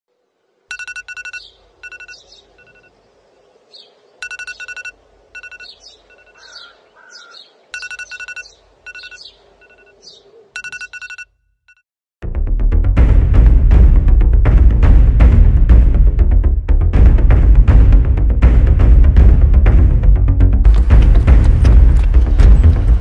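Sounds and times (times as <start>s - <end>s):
electronic beeping: 0.7s - 2.9s, 4.2s - 6.4s, 7.7s - 10.0s, 10.6s - 11.8s
bird-like chirps: 0.7s - 11.2s.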